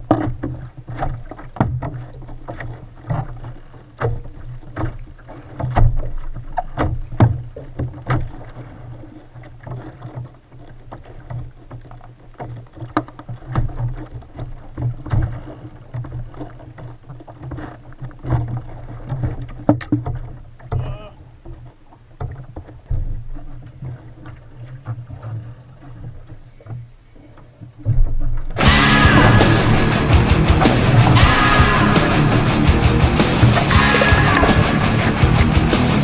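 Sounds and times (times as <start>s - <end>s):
waves slapping a kayak hull: 0.0s - 31.2s
low rumble: 28.6s - 36.0s.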